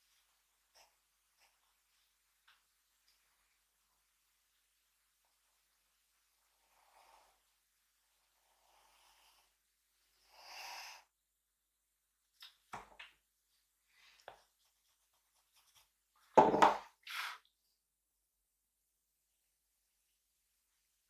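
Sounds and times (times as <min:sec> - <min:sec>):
pencil stroke on paper: 0:14.4 - 0:16.0
knock on desk: 0:16.4 - 0:16.8.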